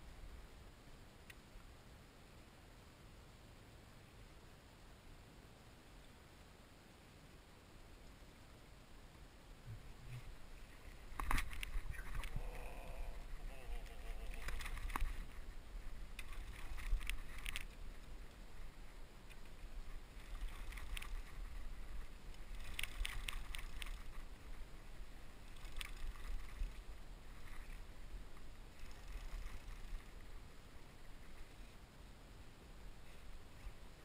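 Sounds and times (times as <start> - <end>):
wind rumbling on microphone: 9.6 - 31.7.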